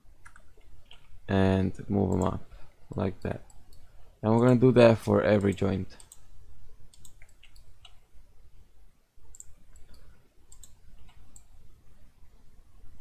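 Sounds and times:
mouse and keyboard clicks: 6.9s - 8.0s, 9.3s - 11.5s.

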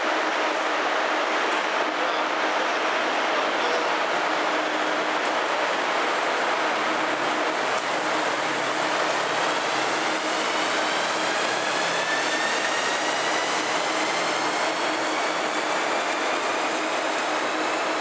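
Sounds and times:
train rushing noise: 0.0s - 18.0s
traction motors whining: 7.1s - 18.0s.

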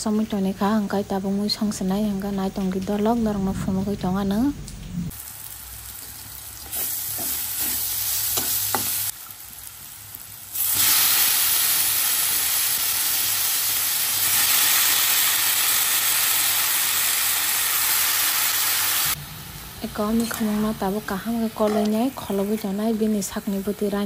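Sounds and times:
food sizzling in a wok: 5.1s - 24.0s
spatula scraping wok: 6.0s - 9.1s.

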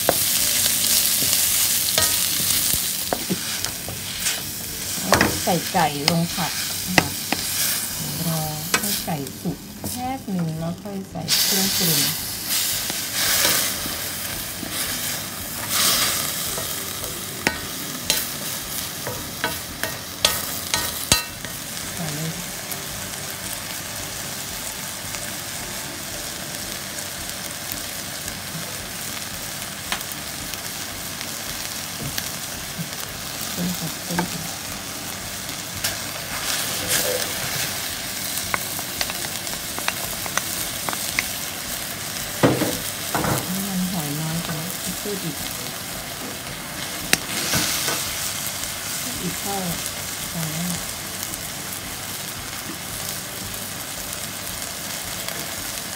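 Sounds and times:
spatula scraping and knocking wok: 0.0s - 9.1s, 11.3s - 21.6s
food sizzling in a wok: 0.0s - 55.9s.

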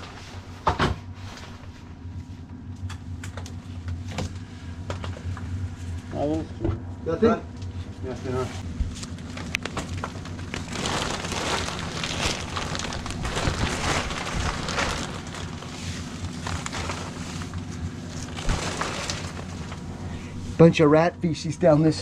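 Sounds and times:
air scrubber fan hum: 0.0s - 22.0s
insulation rustling and crackling: 7.6s - 20.8s.

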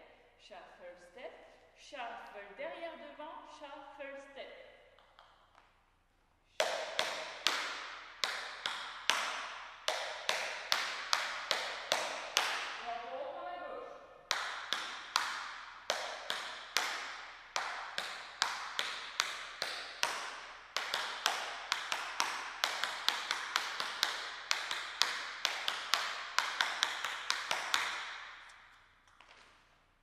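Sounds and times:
tap shoes on wooden floor: 6.6s - 12.9s, 14.3s - 29.6s.

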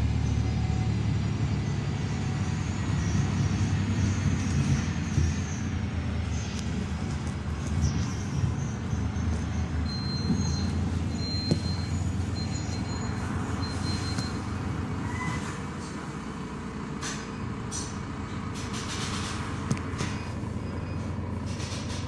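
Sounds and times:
bus engine and road rumble: 0.0s - 22.0s.

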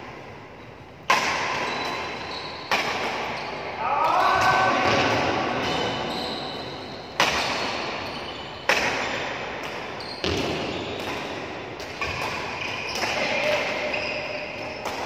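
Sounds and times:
badminton racket hitting shuttlecock: 1.0s - 3.4s, 7.2s - 8.0s, 8.6s - 15.0s.

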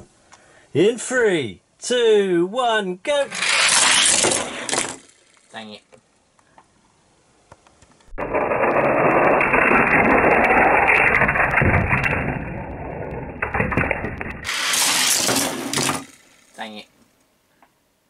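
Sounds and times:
toy cars rolling down plastic track: 3.3s - 5.6s, 8.2s - 16.8s.

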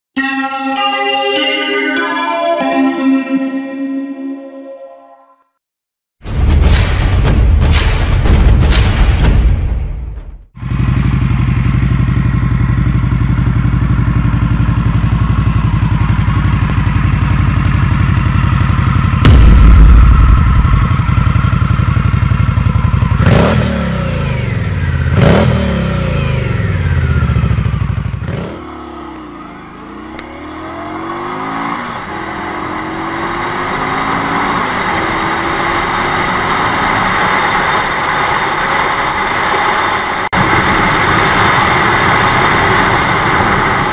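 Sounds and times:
motorcycle idling and revving: 10.5s - 43.9s
motorcycle riding through gears: 10.6s - 19.5s, 20.6s - 43.9s.

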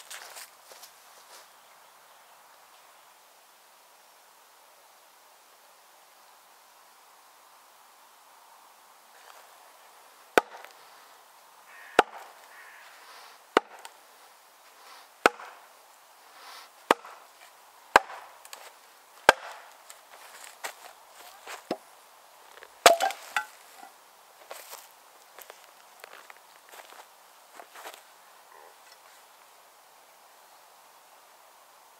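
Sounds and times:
log cracking apart: 16.9s - 21.8s, 22.5s - 23.9s.

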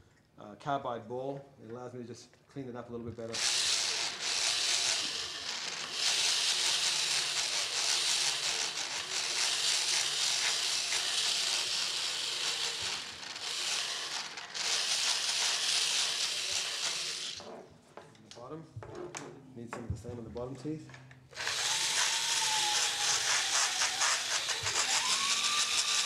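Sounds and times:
dental float grinding tooth: 3.4s - 17.4s, 21.4s - 26.0s.

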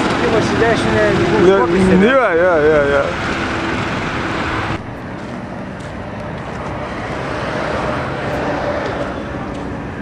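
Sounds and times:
road traffic: 0.0s - 10.0s.

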